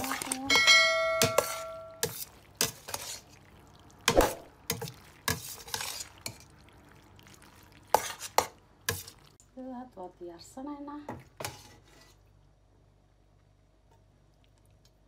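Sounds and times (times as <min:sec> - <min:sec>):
metal spoon scraping metal pot: 0:00.0 - 0:03.2, 0:04.1 - 0:06.4.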